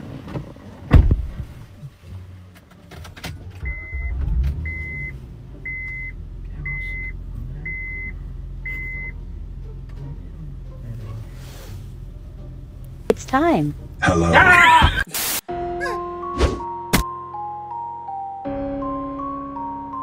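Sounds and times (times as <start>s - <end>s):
car engine idling: 1.5s - 14.0s
dashboard warning chime beeping: 3.6s - 9.2s.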